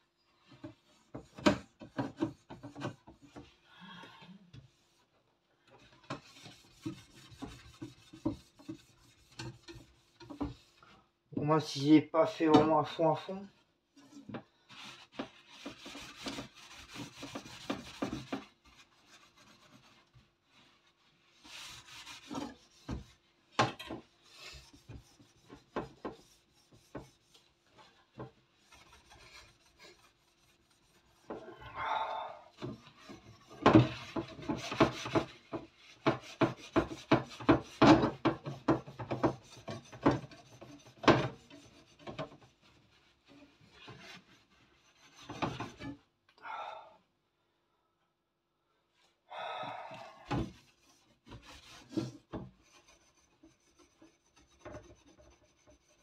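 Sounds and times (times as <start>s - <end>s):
sponge scrubbing metal rack: 5.8s - 10.8s, 14.7s - 31.6s, 32.5s - 46.0s.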